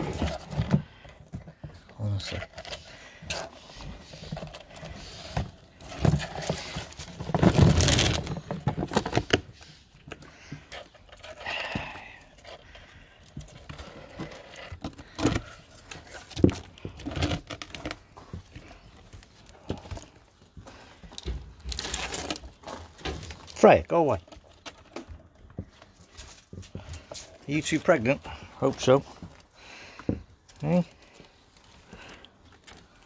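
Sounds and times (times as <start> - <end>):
animals knocking and scratching: 0.0 - 23.6.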